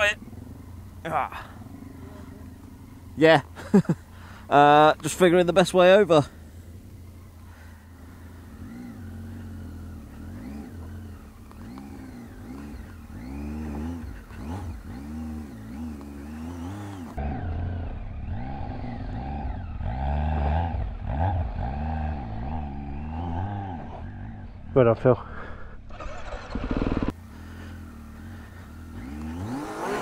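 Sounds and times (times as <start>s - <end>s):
motorcycle engine revving: 0.0s - 30.0s
louder engine revving: 8.0s - 24.6s, 25.9s - 30.0s.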